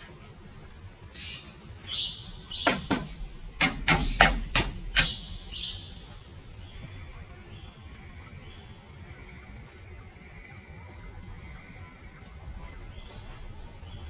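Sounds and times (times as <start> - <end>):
hand tool striking wood: 2.6 - 5.4.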